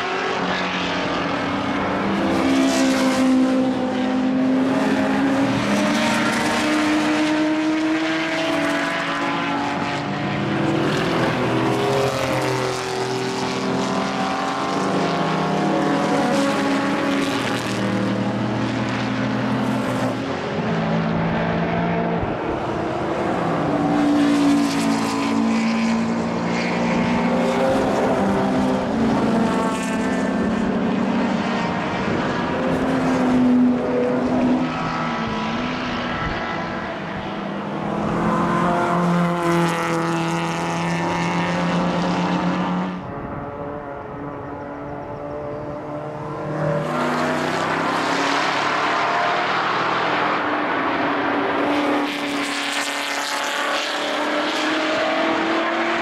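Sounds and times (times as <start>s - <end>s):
racing car engines accelerating: 0.0s - 56.0s.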